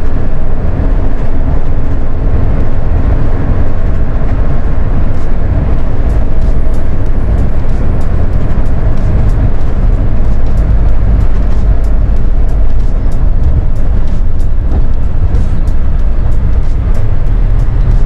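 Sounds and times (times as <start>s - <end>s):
minibus engine and road rumble: 0.0s - 18.0s.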